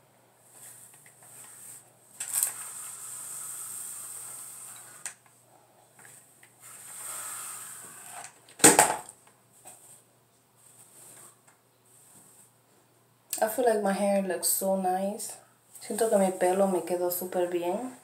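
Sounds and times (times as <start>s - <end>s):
hair rustling under flat iron: 0.5s - 5.3s, 15.8s - 18.0s.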